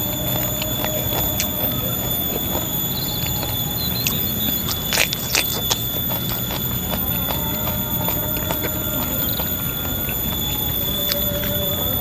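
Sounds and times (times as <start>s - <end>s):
close-up chewing: 0.0s - 12.0s
high-pitched animal whine: 0.0s - 12.0s.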